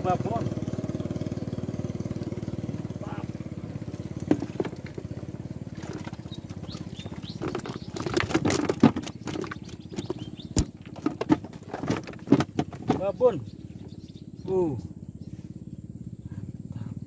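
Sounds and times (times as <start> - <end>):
small boat motor running: 0.0 - 17.0
sharp clicks and knocks: 7.0 - 13.1.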